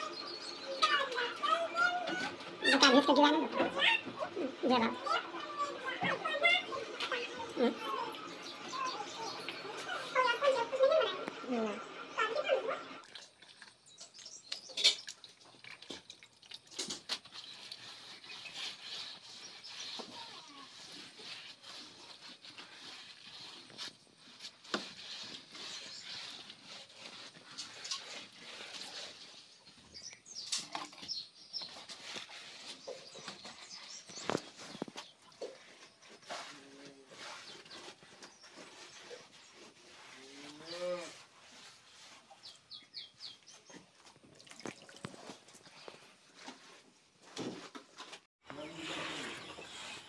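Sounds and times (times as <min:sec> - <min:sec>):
wet plaster smeared by hand: 0:15.6 - 0:29.7.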